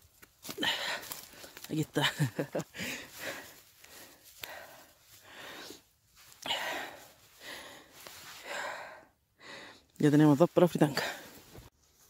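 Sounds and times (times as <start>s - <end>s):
person breathing heavily: 0.5s - 1.7s, 2.7s - 9.9s.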